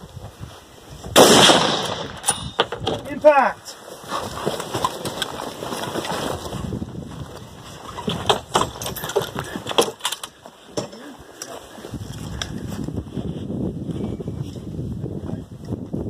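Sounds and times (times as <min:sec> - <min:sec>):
rustling footsteps: 0:00.0 - 0:01.2, 0:02.1 - 0:14.8
rifle and gear clattering on wood: 0:01.6 - 0:03.2, 0:03.9 - 0:12.6.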